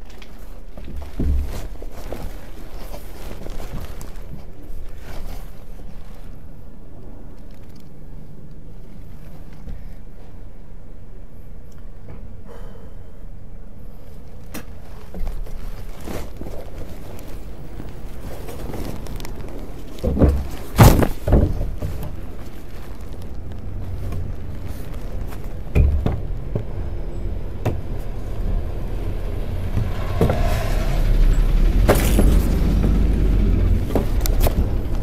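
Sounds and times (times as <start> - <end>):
dump truck rumbling past: 23.5 - 35.0.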